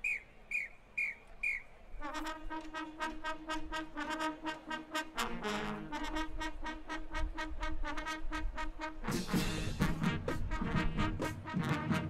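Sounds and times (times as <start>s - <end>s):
short high whistle blasts: 0.0s - 1.8s
marching band brass: 0.5s - 12.0s.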